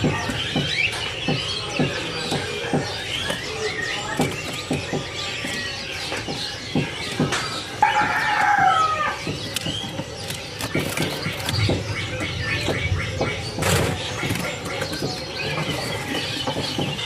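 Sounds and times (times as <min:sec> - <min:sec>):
songbirds chirping: 0:00.0 - 0:17.0
wings fluttering: 0:07.9 - 0:12.0.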